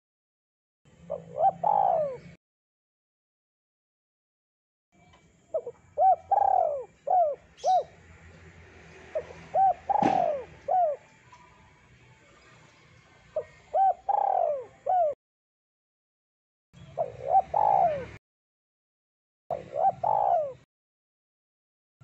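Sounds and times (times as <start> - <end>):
dove cooing: 1.0 - 2.4, 5.5 - 7.9, 9.1 - 11.1, 13.4 - 15.2, 17.0 - 18.2, 19.5 - 20.7.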